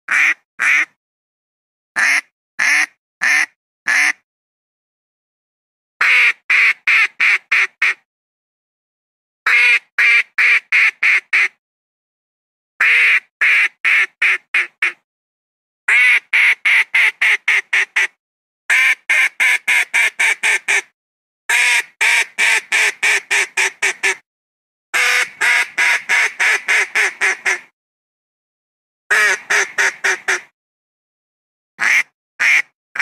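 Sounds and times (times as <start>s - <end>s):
duck quacking: 0.1s - 1.0s, 2.0s - 4.2s, 6.0s - 8.0s, 9.5s - 11.6s, 12.8s - 15.0s, 21.5s - 24.2s, 25.0s - 27.7s, 29.1s - 30.5s, 31.8s - 33.0s.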